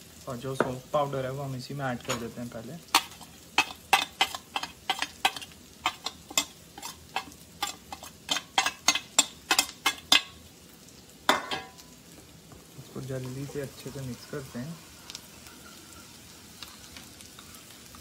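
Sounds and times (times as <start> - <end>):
metal spoon scraping steel plate: 3.0 - 10.2.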